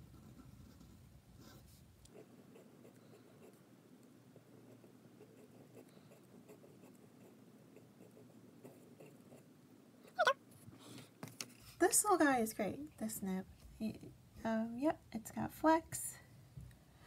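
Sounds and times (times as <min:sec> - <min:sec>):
pen nib scratching paper: 0:04.7 - 0:09.5.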